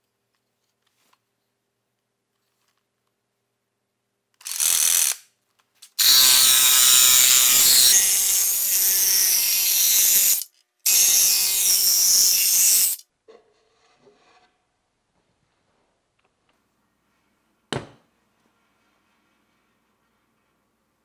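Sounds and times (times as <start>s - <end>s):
drill-driven jigsaw cutting panel: 6.0s - 13.0s.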